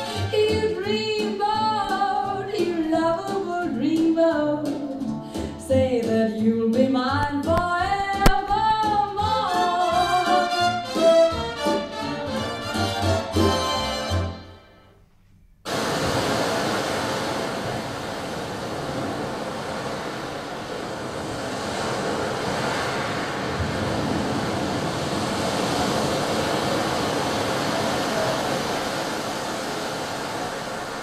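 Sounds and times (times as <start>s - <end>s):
rushing sound effect: 15.7s - 31.0s.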